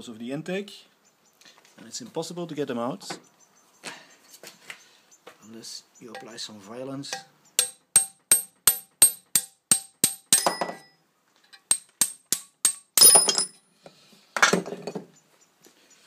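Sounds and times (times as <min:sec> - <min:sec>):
hammer blows ringing on metal: 0:06.2 - 0:06.4, 0:07.1 - 0:10.9.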